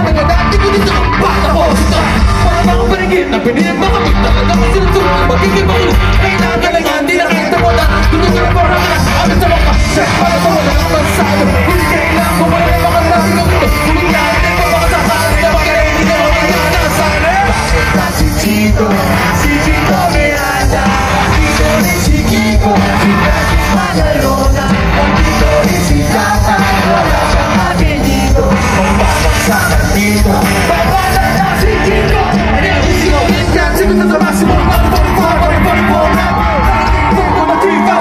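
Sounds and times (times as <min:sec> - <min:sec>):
live rock band: 0:00.0 - 0:38.0
male lead singer: 0:00.0 - 0:38.0.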